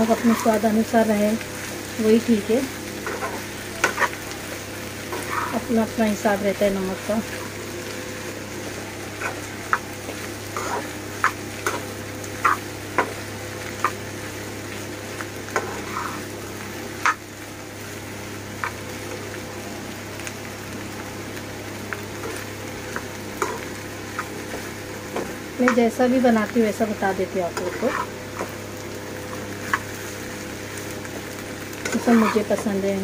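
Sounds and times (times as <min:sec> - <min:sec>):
food frying in a pan: 0:00.0 - 0:33.0
spatula clicking and scraping pan: 0:03.0 - 0:04.2, 0:05.1 - 0:05.6, 0:09.2 - 0:13.2, 0:15.5 - 0:16.3, 0:17.0 - 0:17.2, 0:18.6 - 0:18.8, 0:22.2 - 0:25.9, 0:27.5 - 0:28.6, 0:31.8 - 0:32.7.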